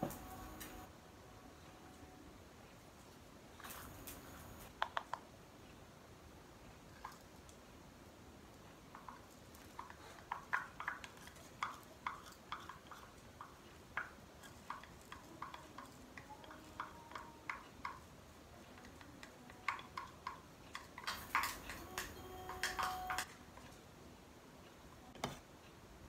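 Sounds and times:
wooden spoon clicking and tapping: 4.8 - 5.2, 8.9 - 18.1, 18.7 - 23.4.

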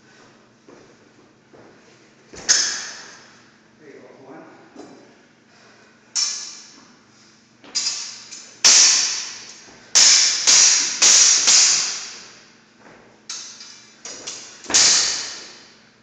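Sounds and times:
sword blades clashing and ringing: 2.5 - 3.2, 6.2 - 6.8, 7.7 - 12.4, 13.3 - 15.7.

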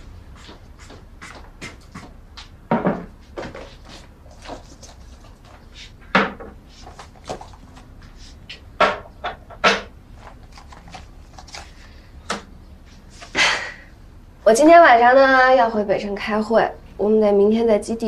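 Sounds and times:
objects knocking on tabletop: 2.7 - 3.6.

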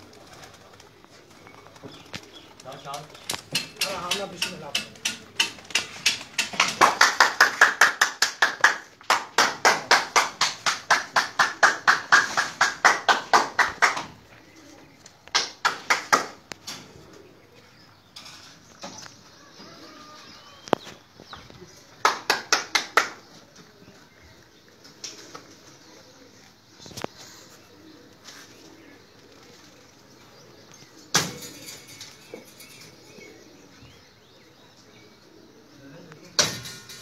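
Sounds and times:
rapid hand clapping: 4.1 - 14.1, 15.3 - 16.4, 22.0 - 23.2.

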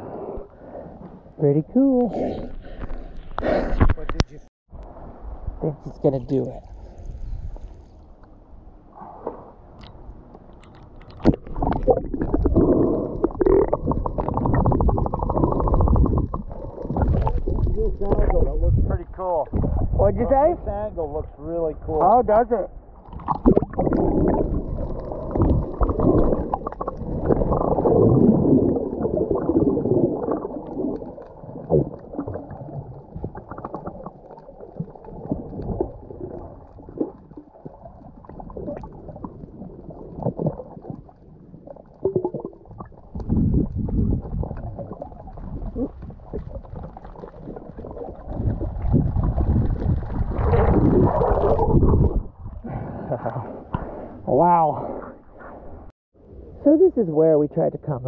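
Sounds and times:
muffled underwater rumble: 6.6 - 56.6
water gurgling: 9.8 - 55.3.

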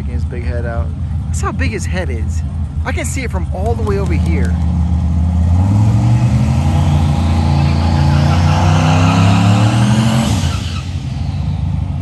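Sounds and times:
truck engine revving: 0.0 - 12.0
tyres spinning and hissing: 6.3 - 12.0.

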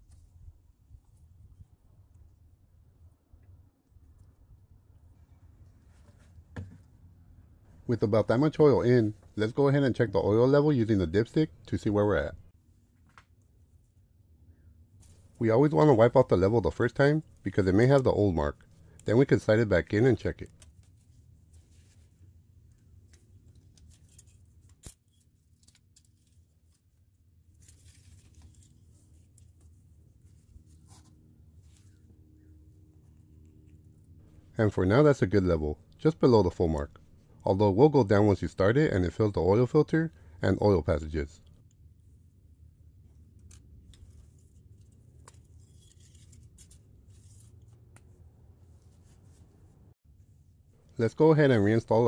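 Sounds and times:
low steady hum: 0.0 - 52.0
faint clicks and handling noises: 14.8 - 34.6, 41.4 - 49.8.

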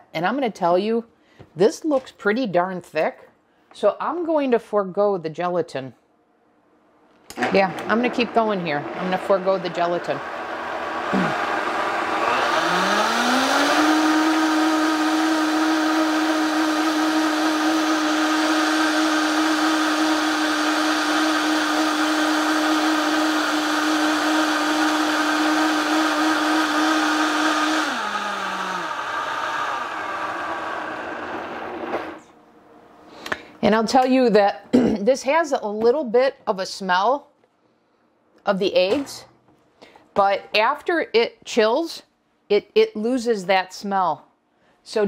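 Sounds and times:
blender motor whining: 7.3 - 32.3.

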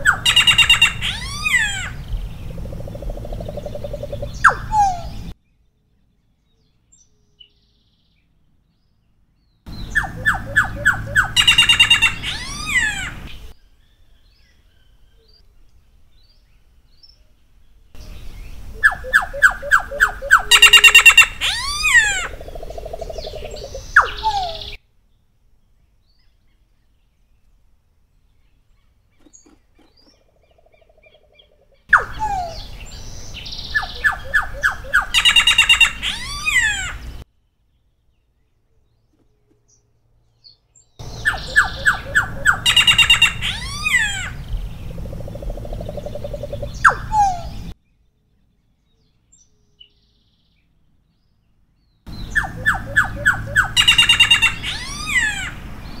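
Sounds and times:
bird singing whistles and notes: 0.0 - 2.6, 3.4 - 5.3, 9.7 - 13.5, 18.0 - 24.8, 31.9 - 37.2, 41.0 - 45.0, 45.8 - 47.8, 52.1 - 56.0.

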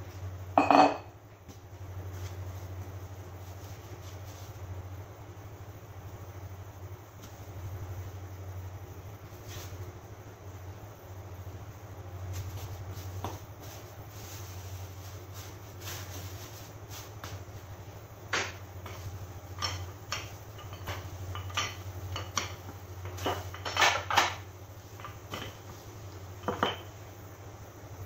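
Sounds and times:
steady low hum: 0.0 - 28.0
plastic sheet rustling: 12.2 - 17.8.

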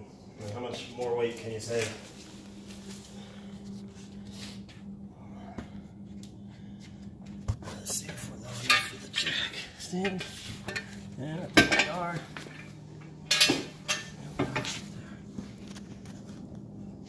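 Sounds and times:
metal tools clanking on metal: 8.0 - 14.8.

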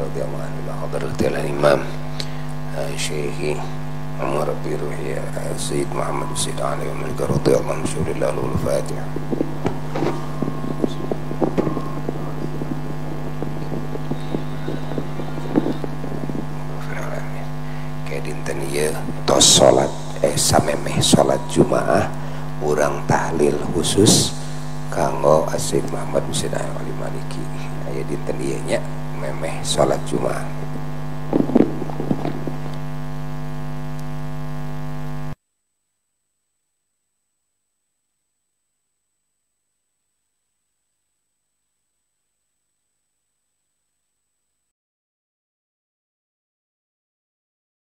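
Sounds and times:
low electrical hum: 0.0 - 44.7
small clicks and crackles: 7.4 - 16.8, 30.6 - 33.0.

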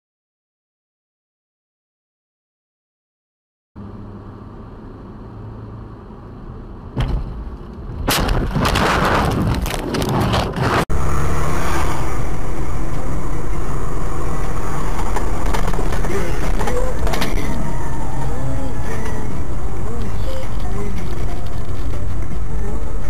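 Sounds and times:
car engine and road noise: 3.8 - 23.0
passing car road noise: 3.8 - 23.0
car crash bang: 7.0 - 10.9
crashing and scraping impacts: 7.0 - 10.9, 14.5 - 17.7.

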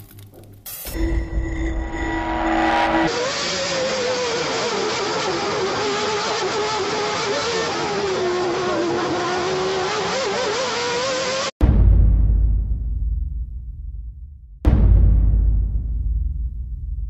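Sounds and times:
racing car engine at high revs: 2.2 - 11.6
loud deep boom: 11.6 - 17.0.

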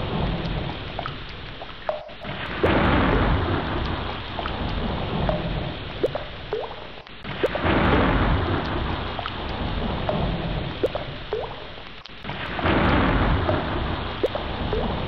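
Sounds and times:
heavy rain falling: 0.0 - 6.5, 7.2 - 15.0
rolling thunder: 2.6 - 4.2, 7.4 - 10.8, 12.5 - 15.0.

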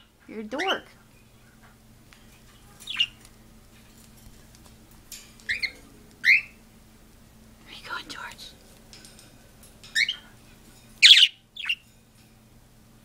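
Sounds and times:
birds squawking: 0.5 - 0.9, 2.6 - 3.2, 5.5 - 6.6, 9.9 - 10.4, 11.0 - 11.8.

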